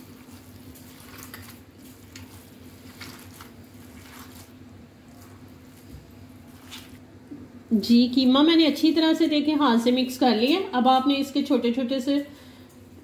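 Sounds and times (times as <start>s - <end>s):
hands squishing meat: 0.0s - 7.0s.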